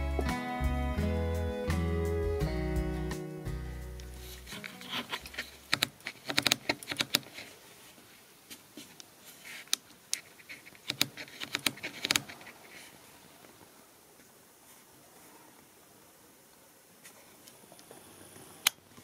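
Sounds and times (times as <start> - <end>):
sharp clicks and light taps: 4.0 - 7.3, 9.7 - 12.4.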